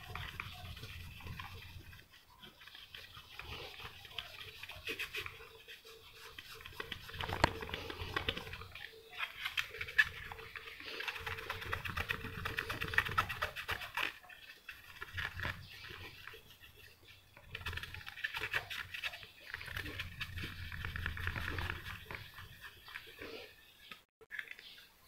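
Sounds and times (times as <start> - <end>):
cloth rubbing on plastic: 0.0 - 23.4.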